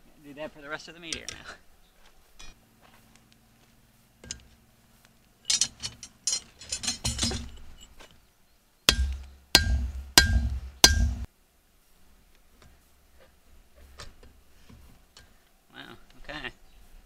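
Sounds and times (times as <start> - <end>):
tools clinking and scraping metal: 5.4 - 8.1
hammer striking chisel on metal: 8.9 - 11.3.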